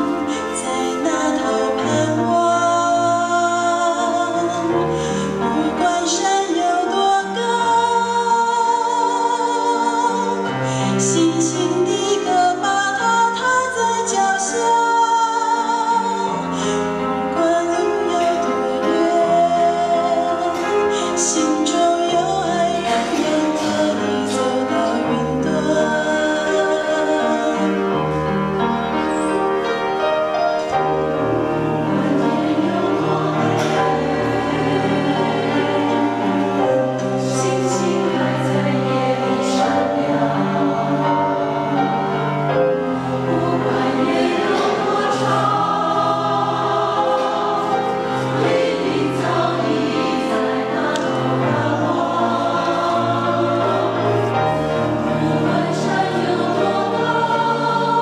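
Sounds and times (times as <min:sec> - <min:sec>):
mixed choir singing a hymn: 0:00.0 - 0:58.0.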